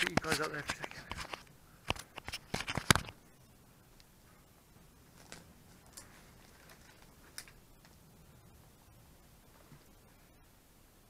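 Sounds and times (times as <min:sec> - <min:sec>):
bag rustling and clicking: 0:05.1 - 0:07.6.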